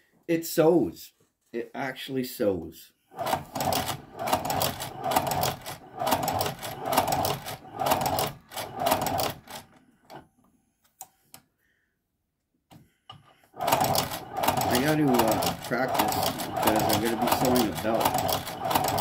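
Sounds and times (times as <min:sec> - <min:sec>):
sewing machine clatter: 0:03.1 - 0:09.8, 0:13.5 - 0:19.0.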